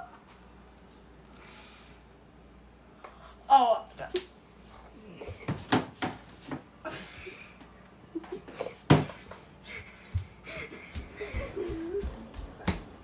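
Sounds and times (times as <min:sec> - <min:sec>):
knocks and bumps in a kitchen: 0:05.3 - 0:06.7, 0:08.8 - 0:09.3, 0:10.1 - 0:13.0.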